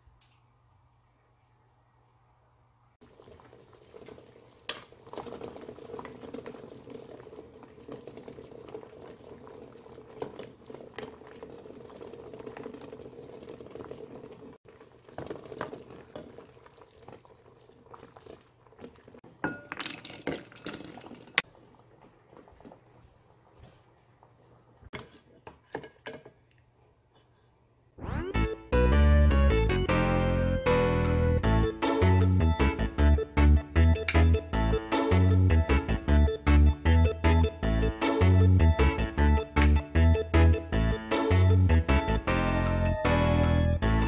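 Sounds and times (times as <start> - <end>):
water boiling in saucepan: 3.0 - 26.6.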